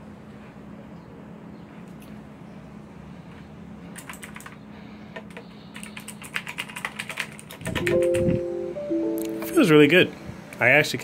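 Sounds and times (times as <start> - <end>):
mechanical keyboard typing: 4.0 - 4.6, 5.3 - 8.5.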